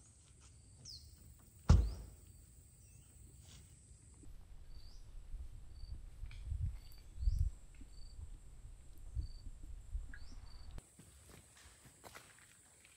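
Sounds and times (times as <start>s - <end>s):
soft low thuds: 1.6s - 2.2s
sharp knock: 1.7s - 2.2s.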